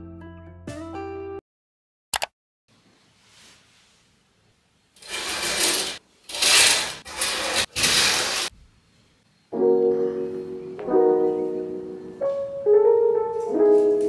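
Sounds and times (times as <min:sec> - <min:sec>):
curtains sliding along rail: 0:05.0 - 0:08.5.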